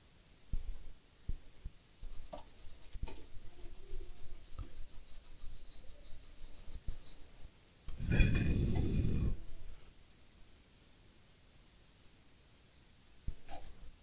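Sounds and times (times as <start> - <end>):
scratchy scrubbing strokes: 2.0 - 7.3.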